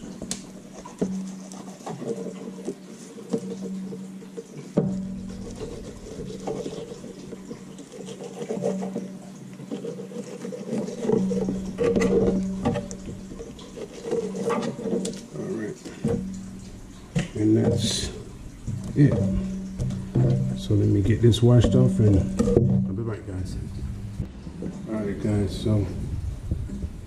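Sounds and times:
knife scraping fish fillet: 0.0 - 15.4
low steady hum: 0.0 - 27.0.

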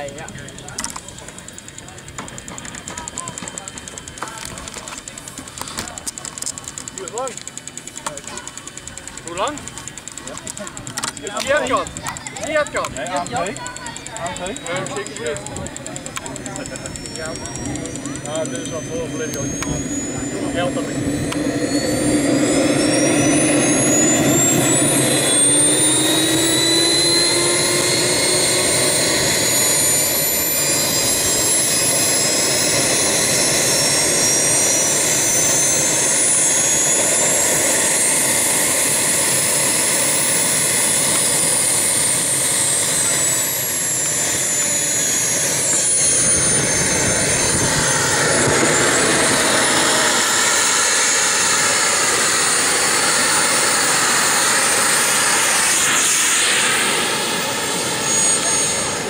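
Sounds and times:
model jet turbine whine: 0.0 - 59.0.

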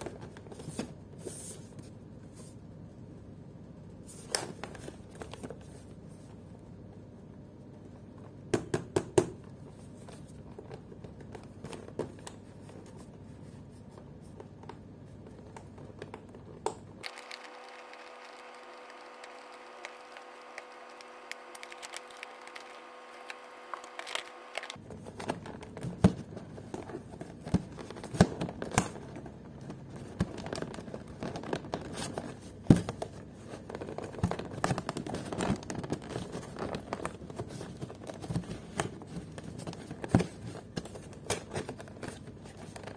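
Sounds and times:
faint steady hum: 0.0 - 42.9.

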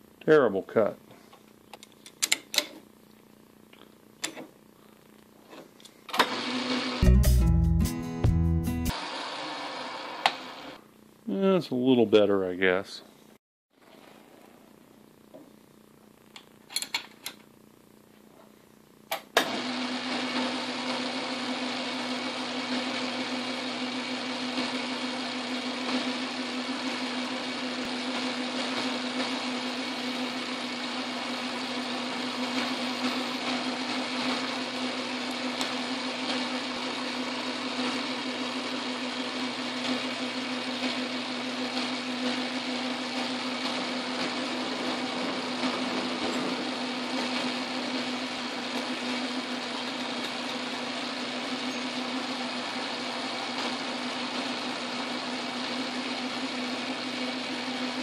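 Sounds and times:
metal lathe running: 19.5 - 58.0.

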